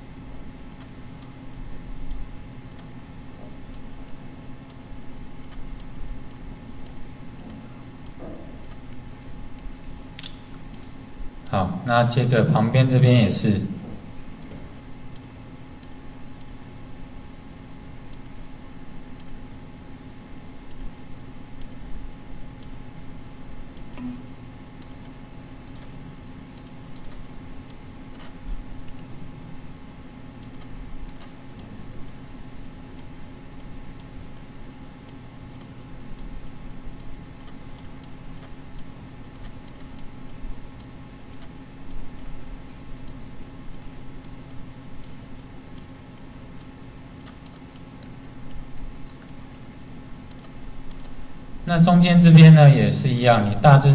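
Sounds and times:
steady low hum: 0:00.0 - 0:53.9
computer mouse clicking: 0:00.7 - 0:02.9, 0:05.4 - 0:11.0, 0:14.4 - 0:16.6, 0:18.1 - 0:18.4, 0:19.2 - 0:19.4, 0:20.6 - 0:21.0, 0:21.6 - 0:21.9, 0:22.6 - 0:22.9, 0:24.8 - 0:29.1, 0:30.4 - 0:32.2, 0:33.0 - 0:42.4, 0:43.0 - 0:51.2.

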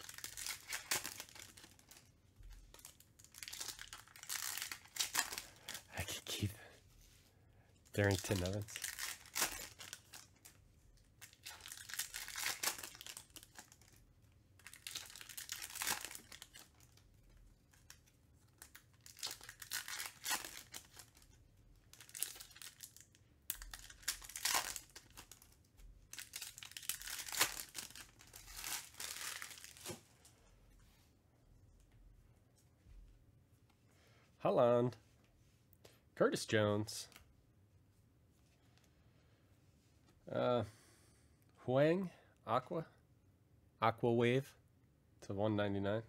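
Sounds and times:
wrappers tearing and crinkling: 0:00.0 - 0:06.2, 0:07.9 - 0:10.6, 0:11.2 - 0:14.0, 0:14.6 - 0:17.0, 0:17.7 - 0:30.0.

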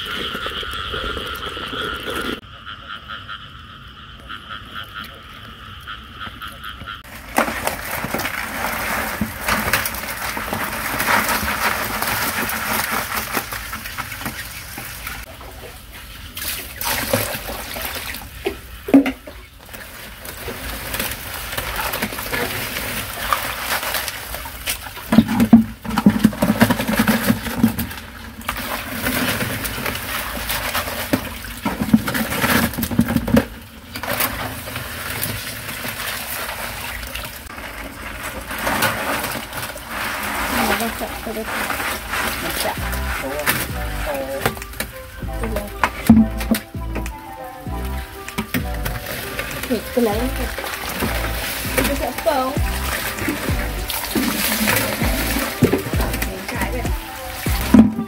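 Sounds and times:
frog chorus: 0:00.0 - 0:08.3
crabs clattering in a basin: 0:04.7 - 0:58.0
water splashing: 0:06.9 - 0:58.0.

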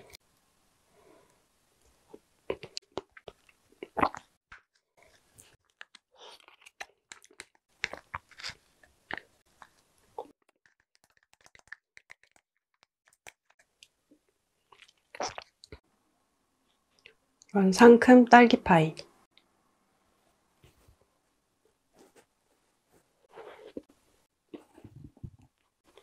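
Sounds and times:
chewing and mouth noises: 0:05.0 - 0:12.4, 0:14.7 - 0:15.8.

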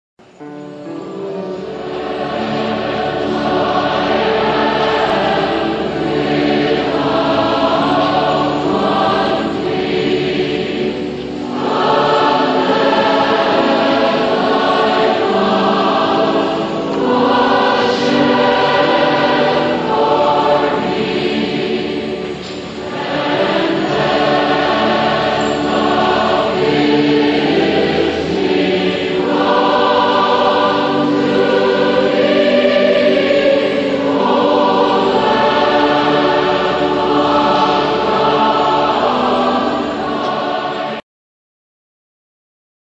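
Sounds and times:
choir singing sustained chords: 0:00.2 - 0:41.0.

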